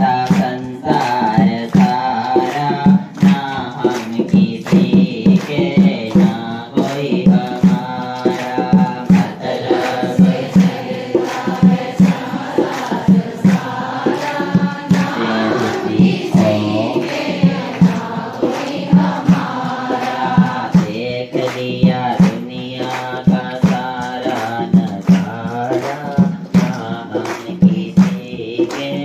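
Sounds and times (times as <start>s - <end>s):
low drum beat: 0.0s - 28.4s
man chanting into a microphone: 0.0s - 29.0s.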